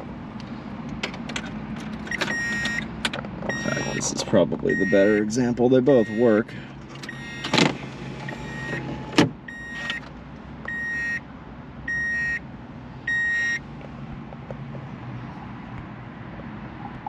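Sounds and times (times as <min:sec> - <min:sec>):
car warning chime beeping: 0:02.1 - 0:02.9, 0:03.5 - 0:07.6, 0:08.2 - 0:10.0, 0:10.7 - 0:11.2, 0:11.9 - 0:12.4, 0:13.1 - 0:13.6.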